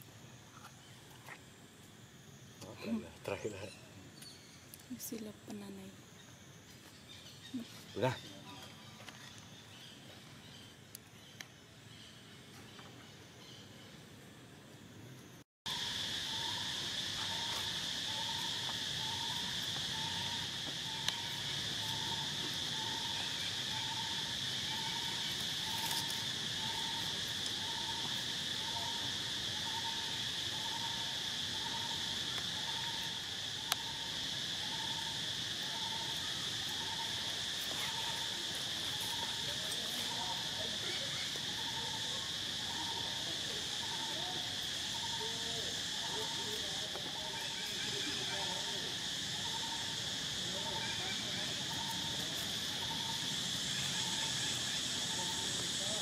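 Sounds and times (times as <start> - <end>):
high-pitched insect drone: 15.7 - 56.0.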